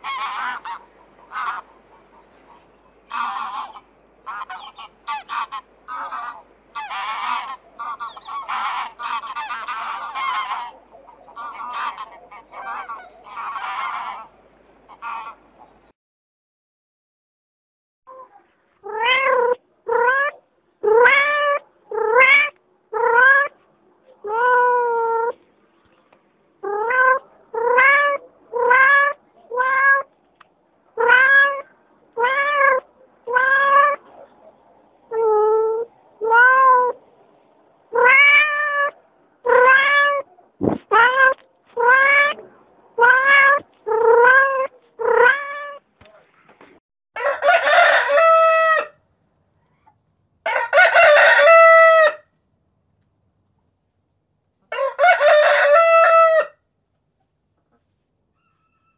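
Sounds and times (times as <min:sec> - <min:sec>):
cat meowing: 0:18.8 - 0:23.5, 0:26.6 - 0:30.1, 0:31.0 - 0:34.0, 0:35.1 - 0:37.0, 0:37.9 - 0:40.3, 0:40.9 - 0:45.8
rooster crowing: 0:47.2 - 0:49.0, 0:50.4 - 0:52.3, 0:54.7 - 0:56.6, 0:58.3 - 0:58.9.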